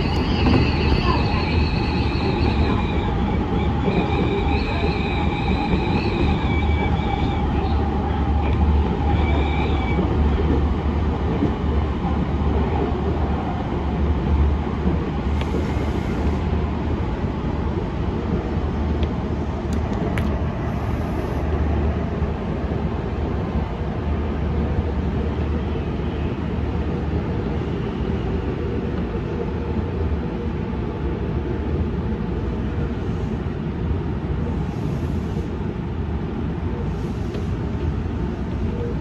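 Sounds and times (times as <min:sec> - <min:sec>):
electric train rumbling: 0:00.0 - 0:39.0.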